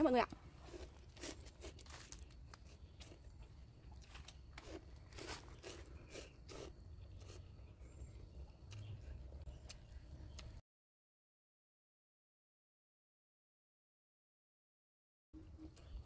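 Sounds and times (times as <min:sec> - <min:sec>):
person slurping noodles: 0:04.6 - 0:07.5.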